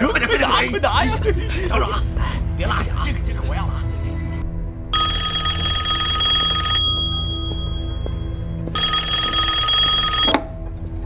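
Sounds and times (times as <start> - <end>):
low background music: 0.0 - 11.0
telephone bell ringing: 4.9 - 10.6.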